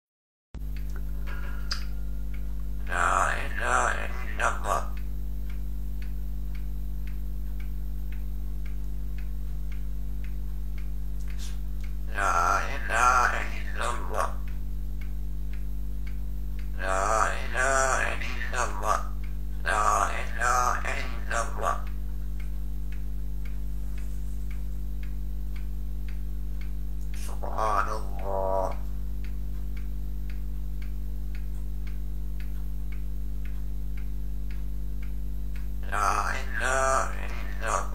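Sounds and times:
low electrical hum: 0.6s - 37.9s
regular ticking: 0.6s - 37.9s
person speaking: 0.8s - 5.1s, 11.2s - 14.5s, 16.6s - 22.5s, 27.0s - 29.4s, 35.8s - 37.9s.

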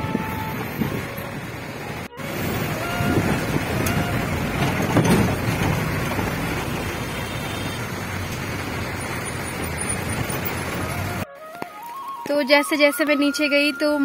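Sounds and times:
vehicle running on rough road: 0.0s - 12.0s
vehicle jolt: 2.6s - 11.2s
rattling: 3.6s - 6.7s.

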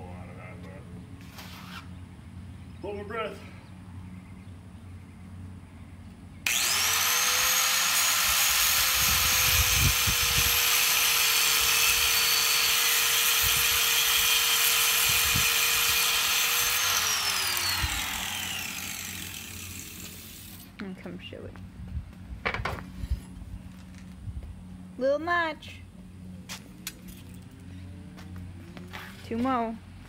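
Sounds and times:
angle grinder cutting: 6.5s - 20.7s.

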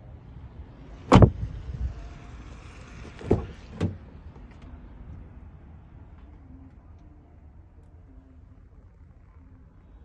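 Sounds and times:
car door shutting thump: 1.1s - 1.4s, 3.2s - 4.0s
dull knocks on car body: 1.1s - 1.4s.

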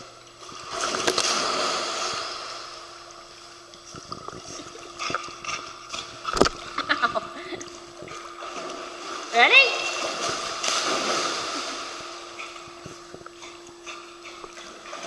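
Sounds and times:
dog splashing in pool water: 0.6s - 2.9s, 8.1s - 13.1s.

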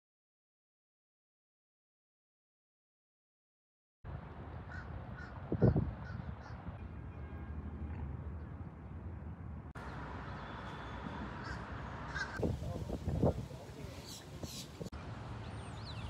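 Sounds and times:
harsh bird call: 10.3s - 12.5s, 13.9s - 14.9s.

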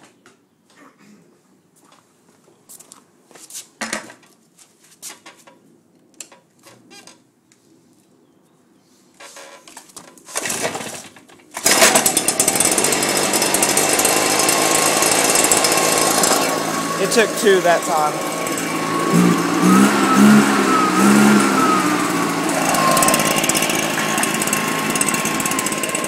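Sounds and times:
recoil starter pulled: 10.3s - 26.0s
two-stroke blower engine running: 11.6s - 26.0s.

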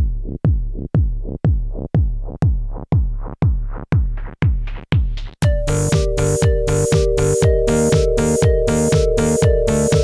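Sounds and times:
steady kick drum: 0.0s - 10.0s
electronic music: 5.4s - 10.0s.

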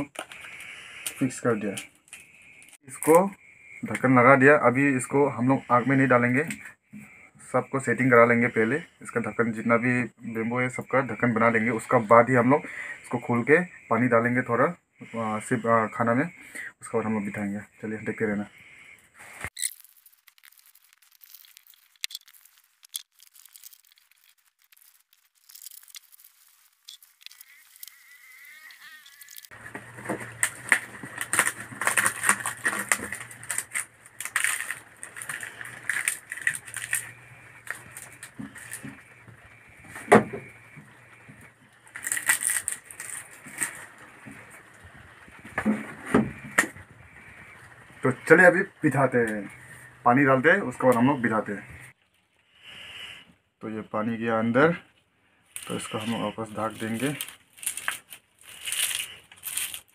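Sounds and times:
leaves rustling and crackling: 19.2s - 52.4s, 55.5s - 59.9s
leaves tearing: 19.5s - 40.5s, 41.1s - 47.2s, 55.6s - 59.9s.

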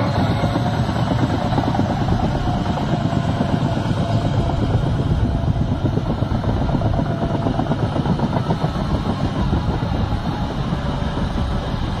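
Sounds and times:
heavy machinery engine rumbling: 0.0s - 12.0s.

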